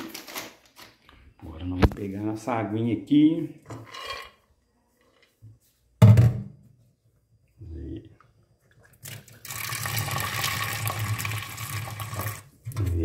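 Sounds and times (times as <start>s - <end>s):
metal pot thump in sink: 6.0s - 6.5s
tap water running into pot: 9.0s - 12.9s.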